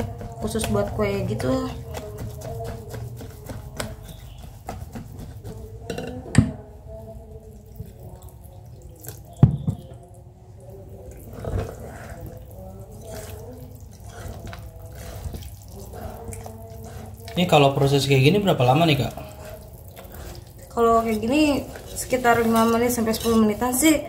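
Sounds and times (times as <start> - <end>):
whisk stirring thick batter: 0.0 - 5.9, 6.9 - 9.4, 10.7 - 24.0.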